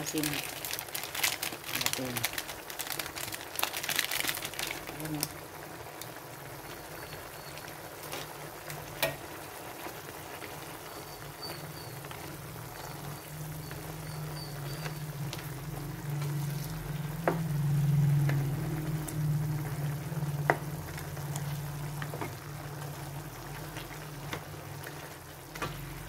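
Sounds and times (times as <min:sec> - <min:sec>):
food bubbling and sizzling in pan: 0:00.0 - 0:26.0
low hum: 0:13.2 - 0:24.2.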